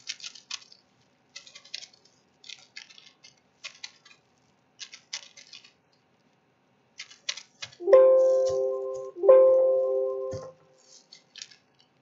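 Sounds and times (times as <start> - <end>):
keyboard keys clicking: 7.8 - 10.5.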